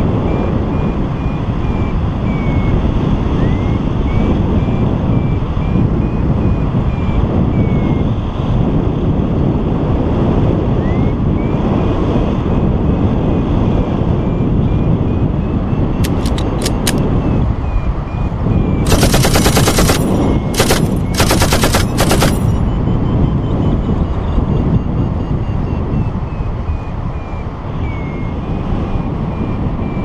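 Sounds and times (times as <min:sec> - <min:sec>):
wind buffeting microphone: 0:00.0 - 0:30.0
fast rattling clicks: 0:16.0 - 0:17.0, 0:18.8 - 0:22.6
sharp clicks: 0:16.0 - 0:17.0, 0:18.9 - 0:22.6.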